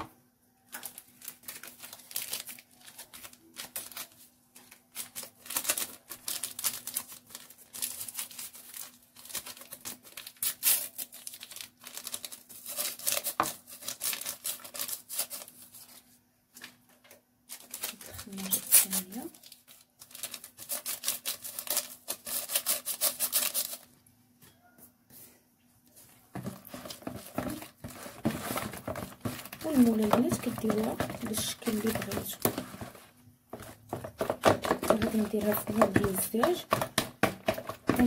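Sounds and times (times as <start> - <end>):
paper sachet crinkling and tearing: 0.7 - 16.7, 17.5 - 23.9, 26.4 - 38.0.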